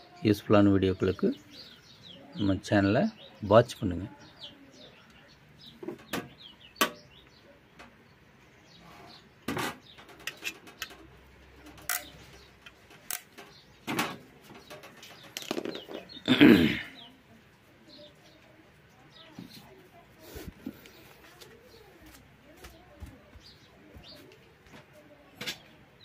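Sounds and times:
faint birds chirping: 0.0s - 26.0s
sharp clicks and knocks: 9.5s - 16.0s.

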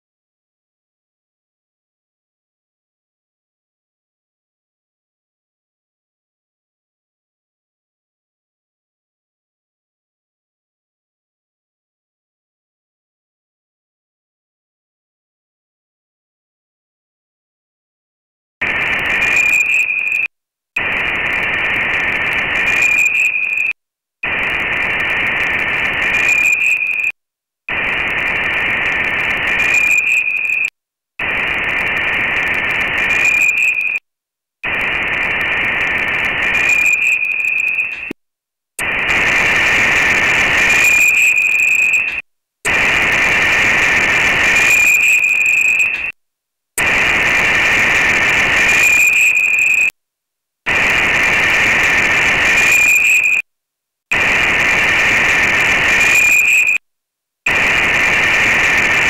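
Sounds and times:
radio static bursts: 18.6s - 34.0s, 34.6s - 38.2s, 38.8s - 46.2s, 46.8s - 49.9s, 50.7s - 53.4s, 54.1s - 56.8s, 57.5s - 59.0s.

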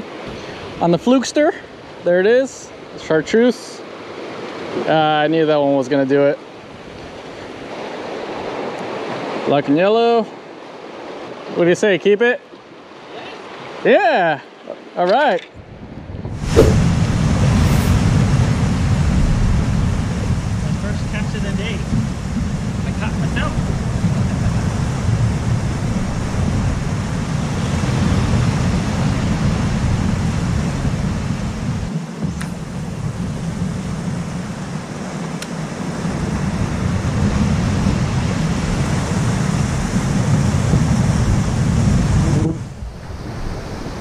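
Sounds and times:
ocean surf washing: 0.0s - 14.0s, 15.6s - 44.0s
wind rumbling on microphone: 15.6s - 44.0s.

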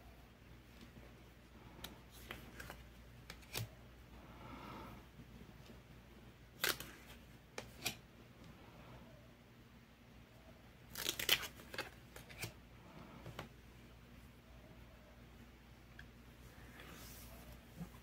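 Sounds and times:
cards sliding and clicking: 1.8s - 3.8s, 6.6s - 8.0s, 11.0s - 12.6s.

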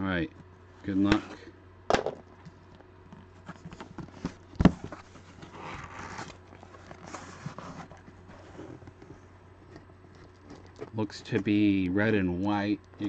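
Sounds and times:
cardboard flaps scraping: 3.4s - 11.0s.

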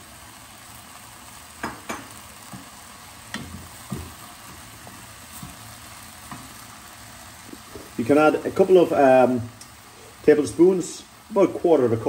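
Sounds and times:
faint sizzle: 0.0s - 12.0s
wooden spoon stirring in pot: 1.7s - 8.1s.

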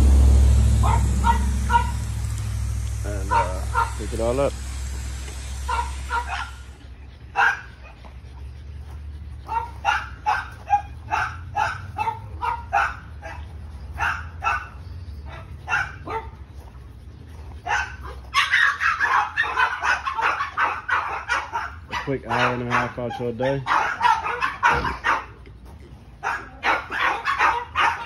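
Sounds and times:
loud dense noise: 0.0s - 7.4s
low steady hum: 0.0s - 18.4s
dogs barking and yipping: 0.0s - 28.0s.

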